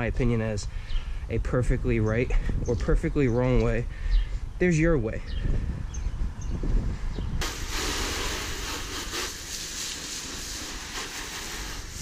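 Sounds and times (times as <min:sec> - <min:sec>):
water spraying from hose: 0:07.4 - 0:12.0.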